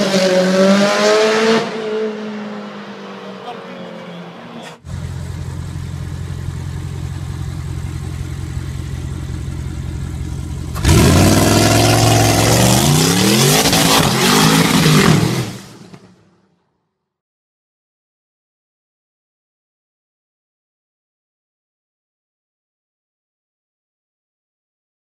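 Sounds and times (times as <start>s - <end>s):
car engine idling and revving: 0.0s - 16.1s.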